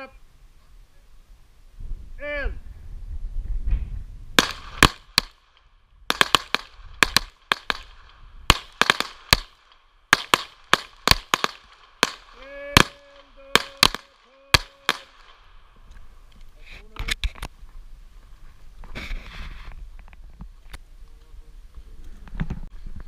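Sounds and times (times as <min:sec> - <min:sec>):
pistol shots: 0:04.4 - 0:15.6.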